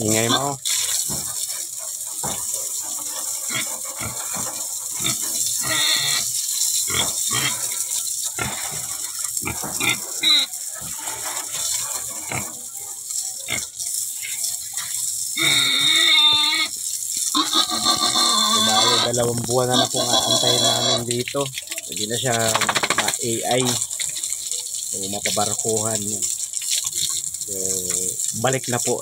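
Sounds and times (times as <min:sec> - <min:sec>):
pig grunting: 0:06.9 - 0:07.8, 0:17.4 - 0:21.2.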